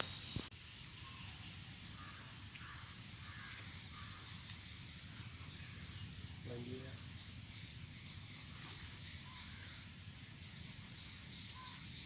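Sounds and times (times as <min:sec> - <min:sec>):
distant crows cawing: 0:01.0 - 0:10.4.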